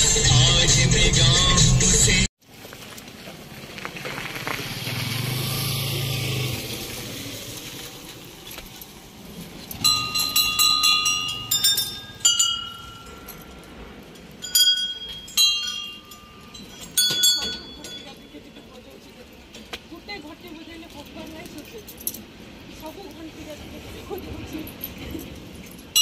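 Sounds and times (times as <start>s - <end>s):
passing vehicle engine hum: 3.4s - 15.3s.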